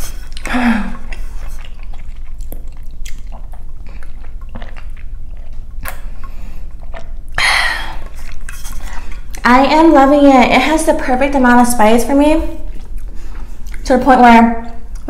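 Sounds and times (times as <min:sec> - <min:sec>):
swallowing: 0:00.0 - 0:09.4.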